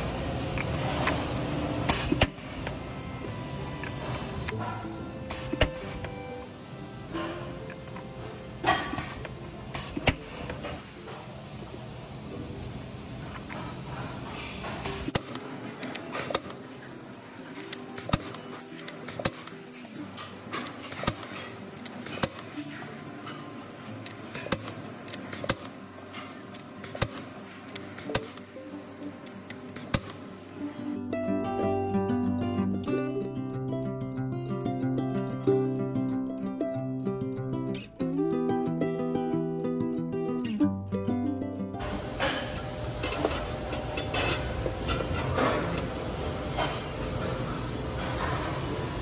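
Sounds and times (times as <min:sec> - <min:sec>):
factory machinery humming: 0:00.0 - 0:31.0, 0:41.8 - 0:49.0
machine hum: 0:41.8 - 0:49.0.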